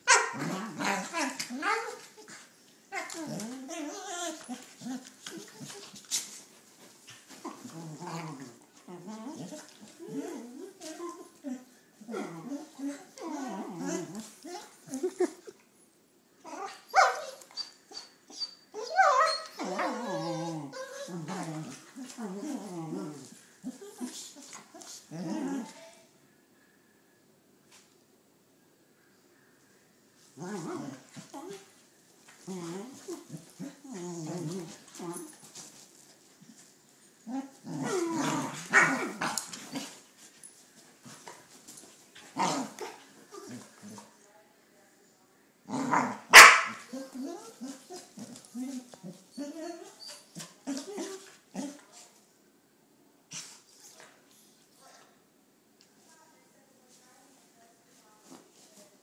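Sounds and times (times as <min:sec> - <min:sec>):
dogs yipping and whining: 0:00.0 - 0:06.0, 0:16.5 - 0:22.6, 0:49.3 - 0:51.3
dogs growling: 0:00.1 - 0:05.9, 0:07.3 - 0:15.6, 0:19.5 - 0:25.8, 0:30.4 - 0:31.6, 0:32.4 - 0:35.5, 0:37.2 - 0:40.0, 0:42.3 - 0:44.1, 0:45.7 - 0:49.8
dogs barking: 0:46.3 - 0:46.9.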